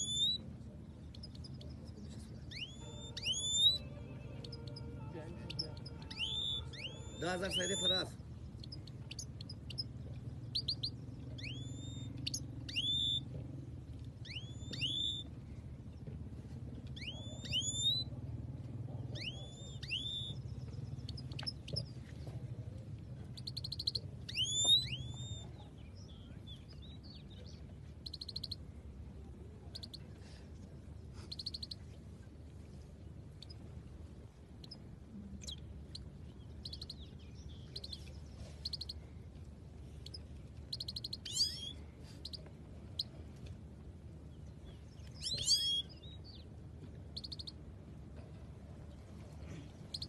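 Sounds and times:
low hum: 0:00.0 - 0:50.0
goldfinches singing: 0:02.5 - 0:08.0.

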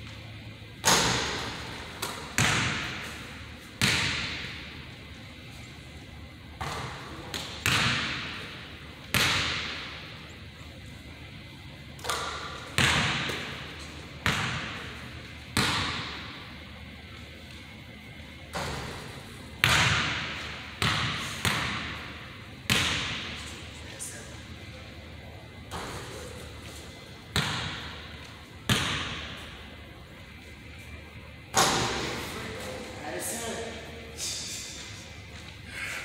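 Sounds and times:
basketball hitting rim: 0:00.8 - 0:04.7, 0:06.6 - 0:08.4, 0:09.1 - 0:10.1, 0:12.0 - 0:15.0, 0:15.6 - 0:16.4, 0:18.5 - 0:23.4, 0:25.7 - 0:26.5, 0:27.3 - 0:29.5, 0:31.5 - 0:32.3
basketball bouncing on wooden floor: 0:27.3 - 0:28.0.

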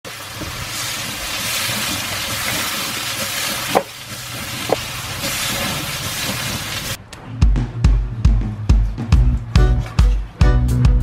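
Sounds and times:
meat sizzling in a wok: 0:00.1 - 0:07.0.

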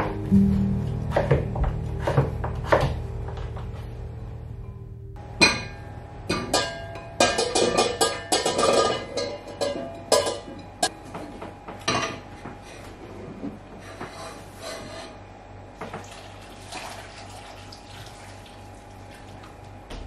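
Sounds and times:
soft background music: 0:00.0 - 0:05.2.

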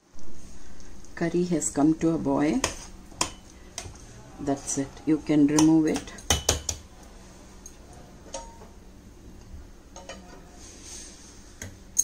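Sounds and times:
low steady hum: 0:00.0 - 0:12.0
kitchenware clicks and clinks: 0:07.6 - 0:08.7, 0:09.9 - 0:10.3.

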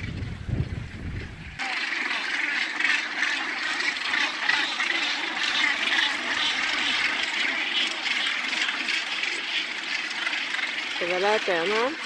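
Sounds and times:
gannet colony calling: 0:01.6 - 0:08.9.

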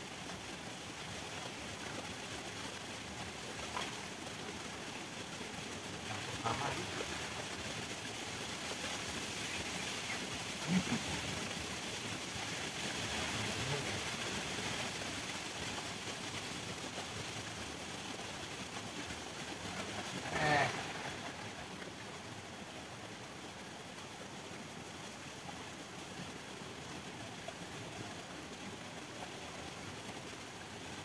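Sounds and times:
river water rushing: 0:00.0 - 0:31.0
person's voice: 0:10.6 - 0:11.4.

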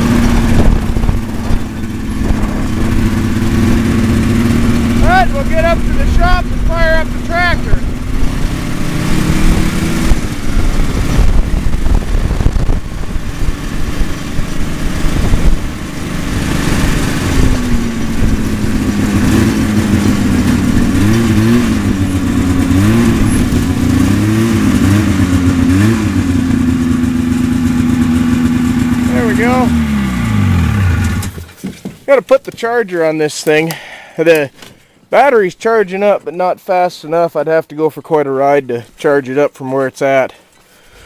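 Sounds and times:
track and wind noise: 0:00.0 - 0:31.5
snowmobile engine: 0:00.0 - 0:31.7.

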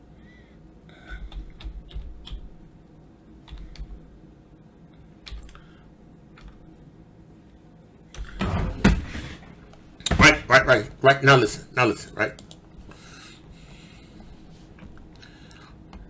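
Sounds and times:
typing on computer keyboard: 0:01.2 - 0:02.5, 0:03.4 - 0:04.0, 0:05.2 - 0:05.6.

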